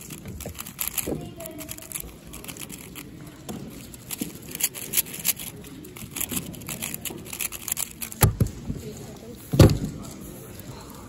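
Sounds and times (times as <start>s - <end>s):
plastic puzzle cube clicking: 0.0s - 3.1s, 3.7s - 8.6s.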